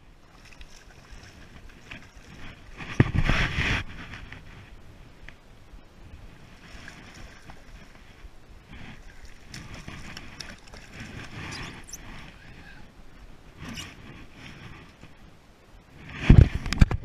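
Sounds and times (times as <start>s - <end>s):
wind on microphone: 1.0s - 17.0s
fish thrashing and splashing: 8.9s - 12.2s.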